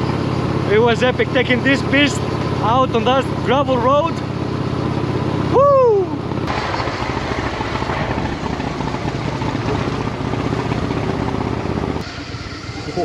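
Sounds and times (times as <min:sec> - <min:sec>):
motorcycle engine running: 0:00.0 - 0:13.0
person whooping shout: 0:05.5 - 0:06.2.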